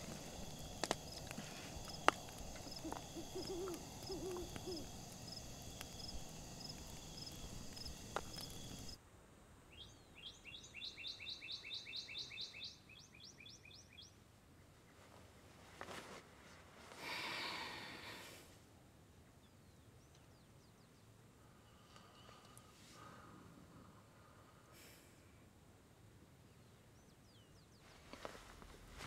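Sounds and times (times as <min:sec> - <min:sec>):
campfire crackling and popping: 0:00.0 - 0:09.0
insects chirping: 0:00.0 - 0:09.0
owl hooting: 0:00.0 - 0:09.0.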